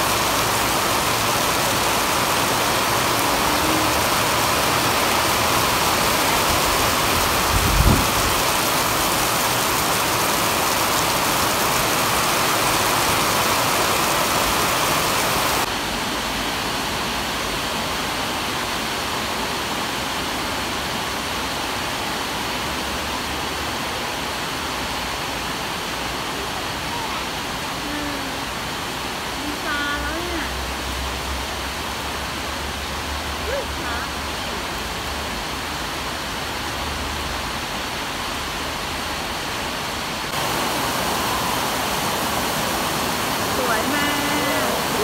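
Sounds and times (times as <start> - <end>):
heavy rain on concrete: 0.0 - 45.0.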